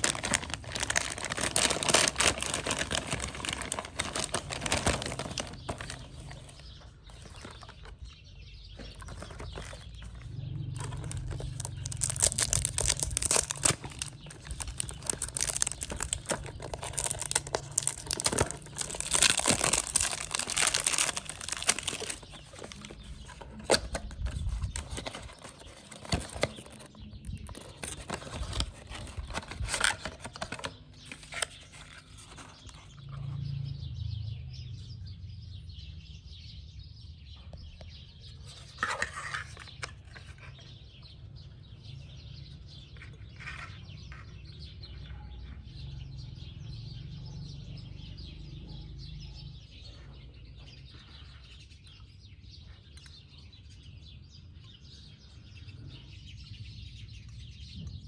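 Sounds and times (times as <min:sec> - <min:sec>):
cardboard packaging rustling: 0:00.0 - 0:33.0, 0:38.4 - 0:40.8.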